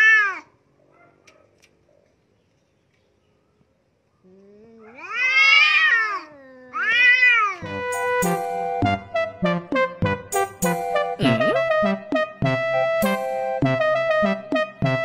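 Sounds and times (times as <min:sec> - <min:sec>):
cat yowling: 0:00.0 - 0:00.6, 0:04.6 - 0:07.6
piano-like background music: 0:07.6 - 0:15.0.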